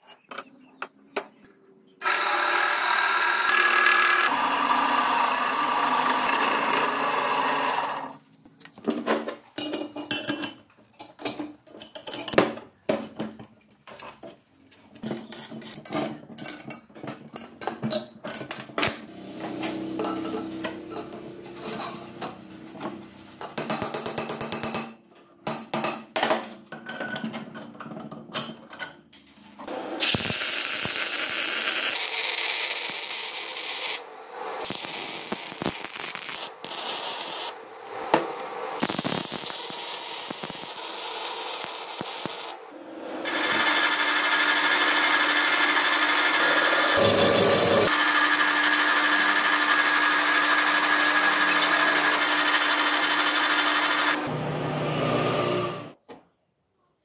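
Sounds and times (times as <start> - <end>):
metal lathe humming: 2.0 - 8.1, 43.2 - 55.9
welder crackling: 30.0 - 37.6, 38.4 - 42.6.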